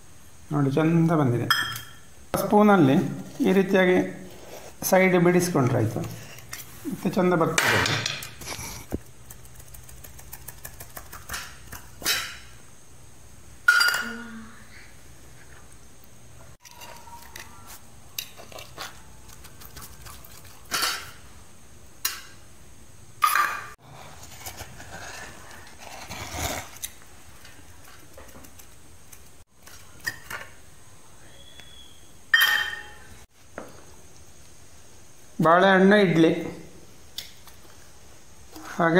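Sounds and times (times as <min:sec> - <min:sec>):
loud ringing metal clank: 0:32.4 - 0:33.1.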